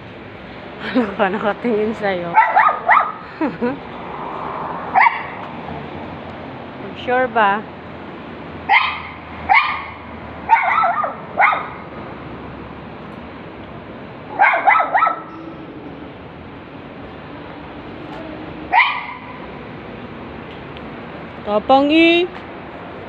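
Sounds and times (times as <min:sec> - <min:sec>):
small dog yapping: 0:02.4 - 0:03.2, 0:04.9 - 0:05.4, 0:08.7 - 0:11.8, 0:14.3 - 0:15.4, 0:18.7 - 0:19.4.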